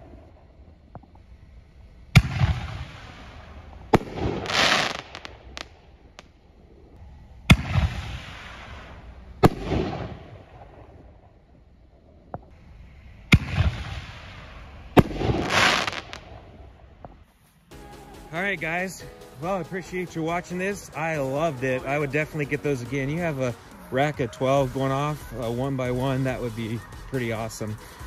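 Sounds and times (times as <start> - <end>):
firework hissing: 1.2 - 6.2, 12.5 - 16.6.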